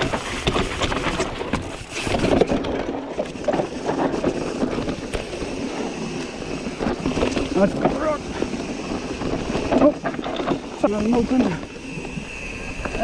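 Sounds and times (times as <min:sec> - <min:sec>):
bike knocking and rattling: 0:00.0 - 0:13.0
tyres rolling over dirt: 0:00.0 - 0:13.0.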